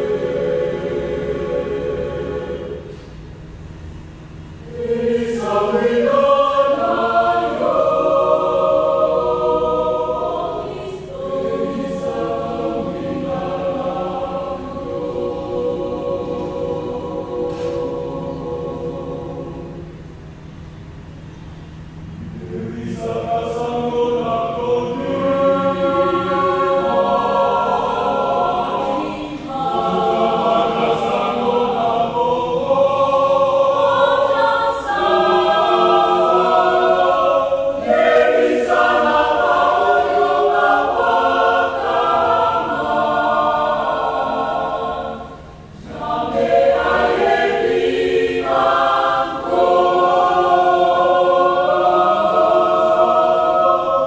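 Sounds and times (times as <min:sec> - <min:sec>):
choir singing a hymn: 0:00.0 - 0:03.5, 0:04.2 - 0:21.0, 0:21.8 - 0:54.0.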